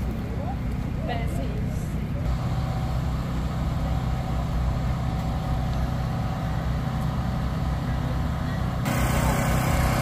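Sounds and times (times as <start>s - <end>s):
portable generator running: 2.2s - 10.0s.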